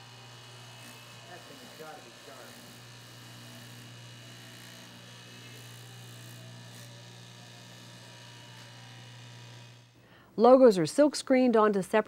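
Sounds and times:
cloth cutting machine buzzing: 0.0 - 10.0.

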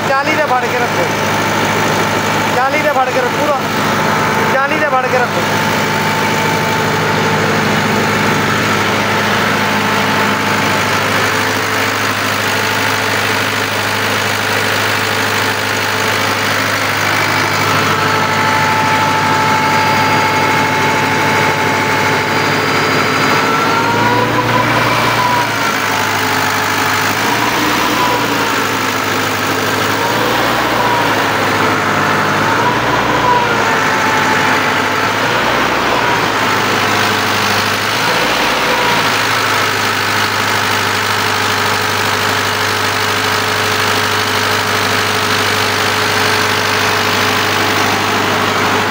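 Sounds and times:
tractor diesel engine running: 0.0 - 48.9.

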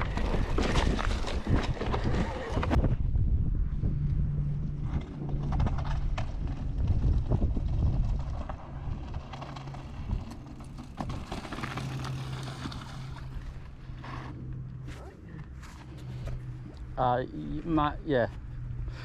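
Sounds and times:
bike tyres rumbling: 0.0 - 19.0
steady low hum: 0.0 - 19.0
bike rattling with clicks: 4.9 - 13.6.

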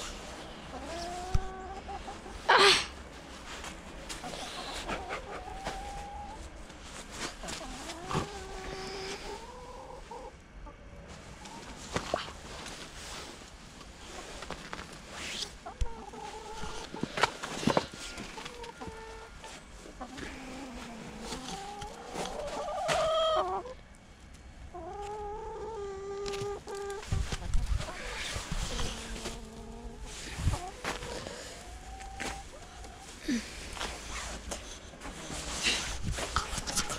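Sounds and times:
chickens clucking: 0.1 - 36.9
hens calling: 0.4 - 3.0, 4.1 - 12.8, 15.5 - 23.8.

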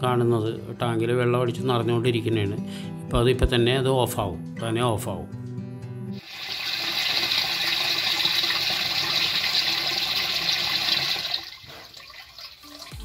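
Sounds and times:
water gushing into tank: 6.2 - 13.0.

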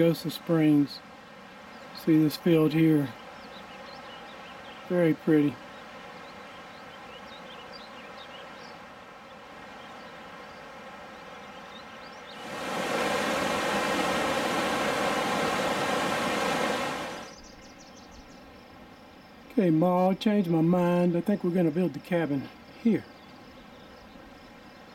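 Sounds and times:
river rushing over rocks: 12.4 - 17.3
faint bird chirps: 16.9 - 24.9.

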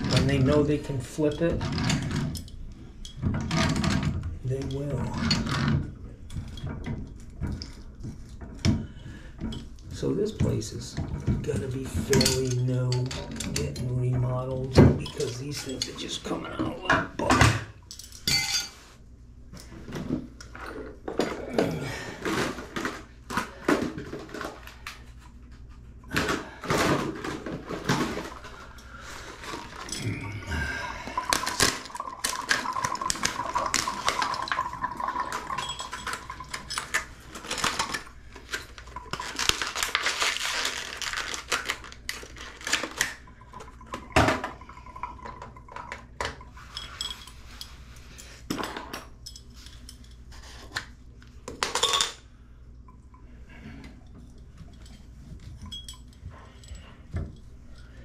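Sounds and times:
water trickling from spout: 30.2 - 37.2, 43.2 - 46.6.

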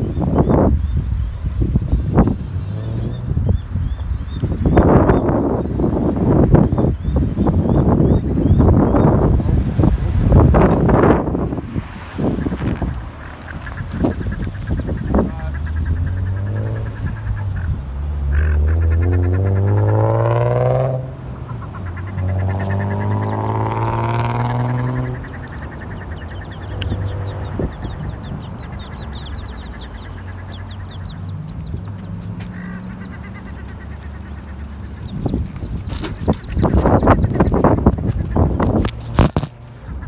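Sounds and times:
car engines accelerating away: 1.3 - 6.9, 7.6 - 38.0
ducklings peeping: 6.4 - 9.3, 12.3 - 20.1, 21.4 - 40.0.

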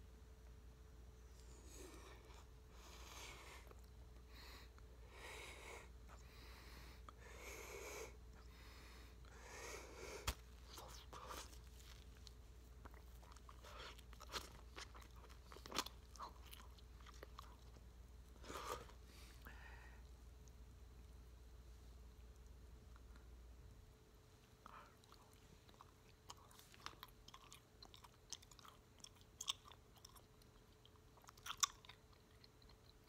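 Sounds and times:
faint breathing: 1.4 - 10.4, 18.4 - 20.1
wet chewing of gum: 10.2 - 19.0, 24.6 - 33.0.

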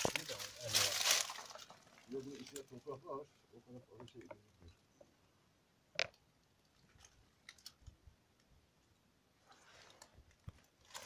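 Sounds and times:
soft rustle: 0.0 - 3.5, 9.4 - 11.0.

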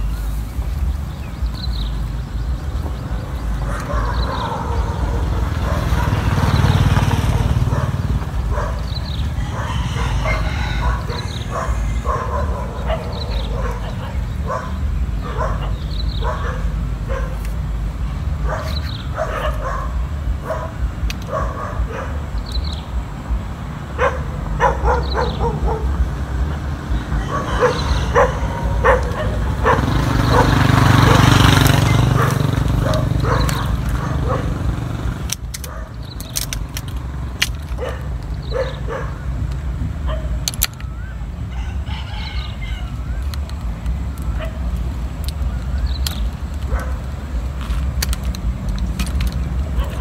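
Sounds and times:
animal barking: 3.6 - 17.4, 18.4 - 22.4, 23.9 - 26.3, 27.0 - 36.0, 37.7 - 39.4, 40.0 - 40.4, 44.3 - 44.8, 46.6 - 47.1, 49.7 - 50.0.

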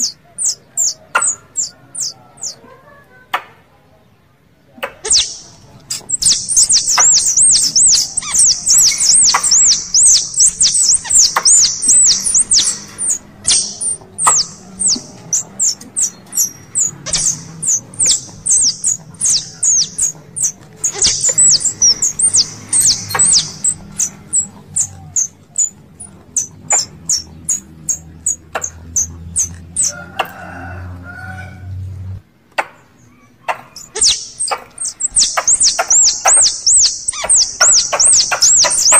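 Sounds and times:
squirrel calls chattering chirps: 0.0 - 2.6, 4.8 - 30.0, 33.1 - 38.9.

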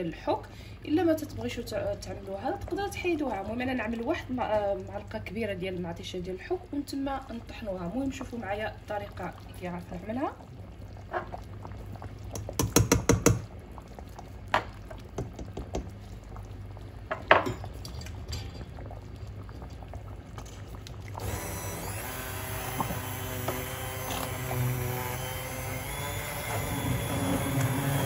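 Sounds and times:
wooden spoon knocking steel pot: 12.4 - 13.4
immersion blender running: 21.2 - 28.0.

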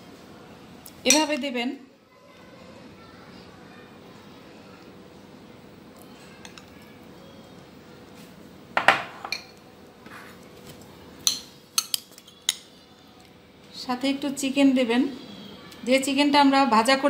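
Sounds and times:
metal spoon clinking on ceramic dishes: 11.2 - 12.7.

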